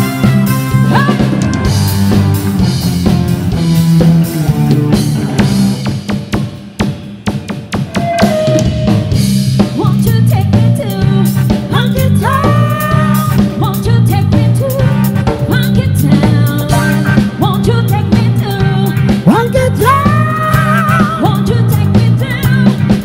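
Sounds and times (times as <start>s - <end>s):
bass: 0.0s - 23.0s
drum kit: 0.0s - 23.0s
electric guitar: 0.0s - 23.0s
woman singing: 9.6s - 23.0s.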